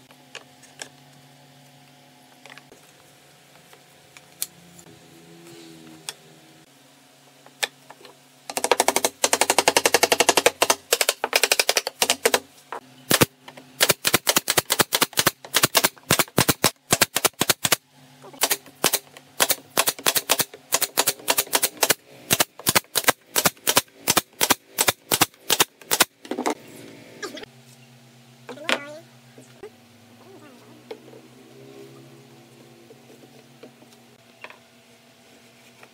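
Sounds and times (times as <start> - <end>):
nail gun firing: 8.5 - 12.4, 13.1 - 17.8, 18.4 - 26.1.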